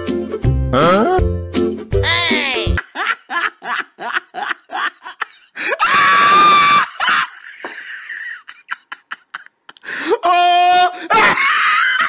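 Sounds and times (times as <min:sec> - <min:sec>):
high-pitched scream: 0:05.8 - 0:07.0.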